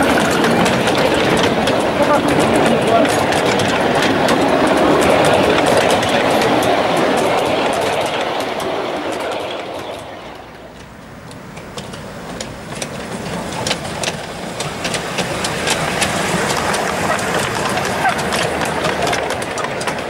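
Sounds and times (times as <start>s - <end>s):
miniature train wagons rolling: 0.0s - 20.0s
wheels clicking over rail joints: 0.0s - 20.0s.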